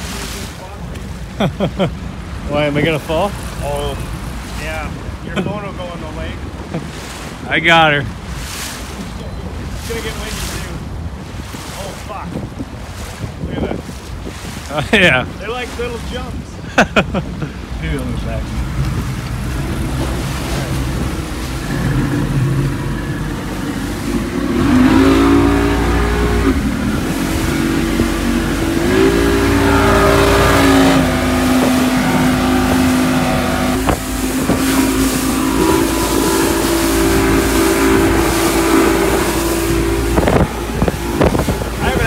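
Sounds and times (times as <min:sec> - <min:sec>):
motorboat engine running: 0:00.0 - 0:42.0
water rushing: 0:00.0 - 0:42.0
wind rushing: 0:18.3 - 0:42.0.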